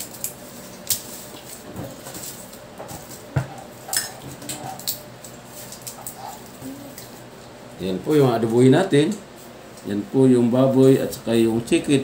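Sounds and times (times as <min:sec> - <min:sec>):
garlic skins crackling: 0:00.0 - 0:07.4.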